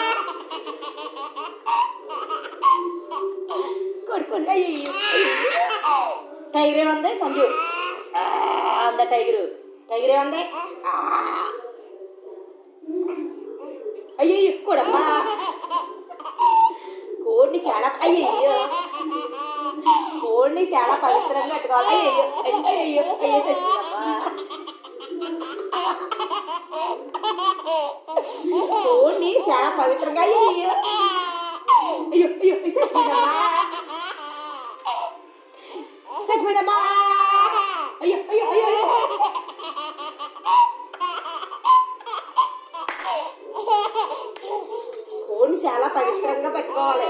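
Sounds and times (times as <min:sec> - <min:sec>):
baby giggling: 0:00.0 - 0:03.8, 0:04.8 - 0:06.2, 0:14.8 - 0:16.8, 0:18.0 - 0:32.1, 0:32.8 - 0:35.2, 0:36.1 - 0:45.2.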